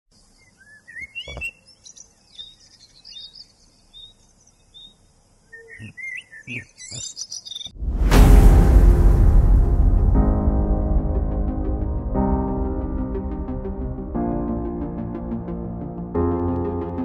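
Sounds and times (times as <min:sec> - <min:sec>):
birds chirping and singing: 0:00.2 - 0:07.8.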